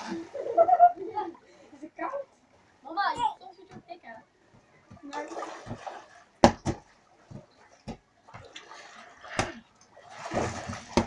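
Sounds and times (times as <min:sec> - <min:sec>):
water sloshing and splashing: 0:00.0 - 0:01.4, 0:02.4 - 0:11.0
ball being hit slaps: 0:06.4 - 0:06.8.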